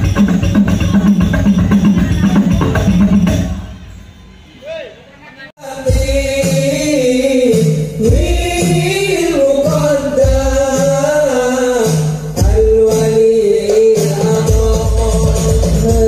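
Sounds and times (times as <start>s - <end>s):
deep drum beat: 0.0s - 3.6s, 5.9s - 16.0s
frame drums with jingles: 0.0s - 3.8s.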